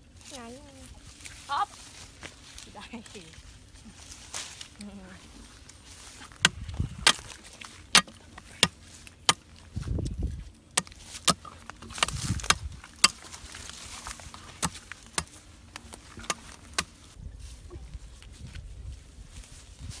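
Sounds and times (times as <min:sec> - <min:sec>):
machete chopping wood: 0:06.4 - 0:09.4, 0:10.8 - 0:13.2, 0:14.5 - 0:15.4, 0:16.2 - 0:17.0.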